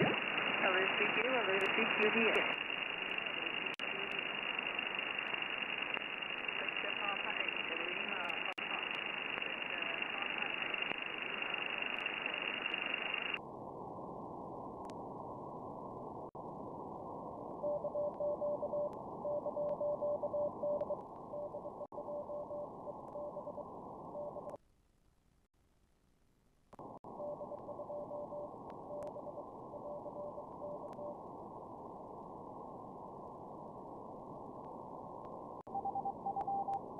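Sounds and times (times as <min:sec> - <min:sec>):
radio band noise hiss: 0:00.0 - 0:13.4.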